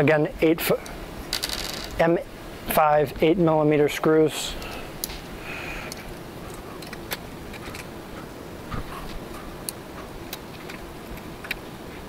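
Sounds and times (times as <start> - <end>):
steady background hum: 0.0 - 12.0
light clicks of small parts: 4.6 - 5.3, 5.9 - 7.9, 9.6 - 11.6.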